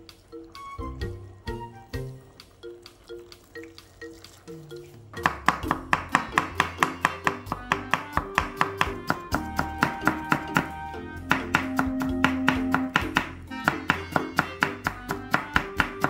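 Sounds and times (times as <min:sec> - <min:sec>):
plucked background music: 0:00.0 - 0:16.0
knife chopping on wooden board: 0:05.2 - 0:10.7, 0:11.3 - 0:16.0.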